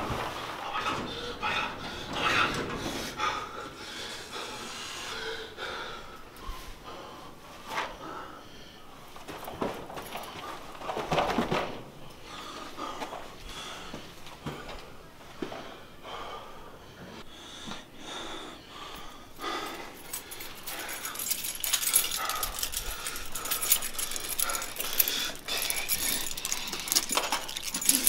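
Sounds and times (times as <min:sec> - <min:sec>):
person breathing hard with gasps: 0:15.6 - 0:28.0
keys jangling: 0:19.4 - 0:28.0.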